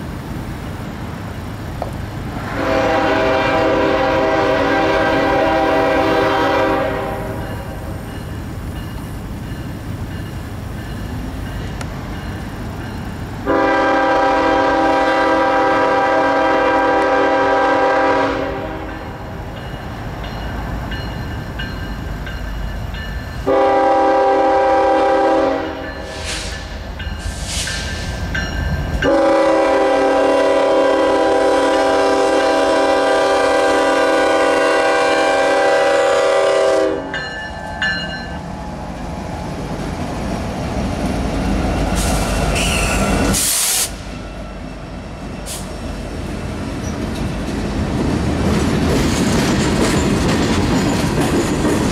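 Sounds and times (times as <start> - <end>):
train rumbling past: 0.0 - 51.9
locomotive air horn blasts: 2.5 - 7.5, 13.4 - 19.1, 23.4 - 26.6, 29.0 - 37.2.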